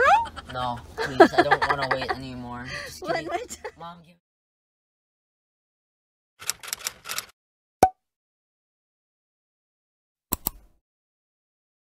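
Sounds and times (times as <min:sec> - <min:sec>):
click sound effects: 0:10.3 - 0:10.7.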